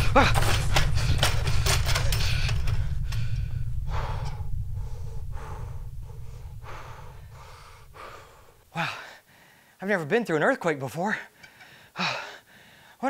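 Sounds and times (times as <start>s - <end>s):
deep earthquake rumble: 0.0s - 9.1s
man gasping and breathing hard: 0.0s - 9.8s, 11.3s - 13.0s.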